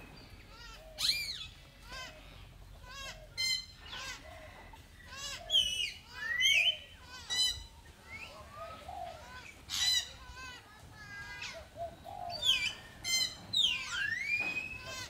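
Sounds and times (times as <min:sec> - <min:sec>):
monkeys squeaking and chirping: 0:00.5 - 0:02.2, 0:02.8 - 0:04.2, 0:05.1 - 0:10.5, 0:11.3 - 0:15.0
monkey squeal rising and falling: 0:13.7 - 0:15.0.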